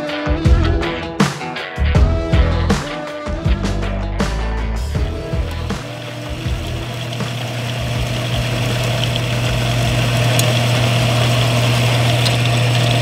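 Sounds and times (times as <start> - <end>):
bandsaw motor hum: 5.0 - 13.0.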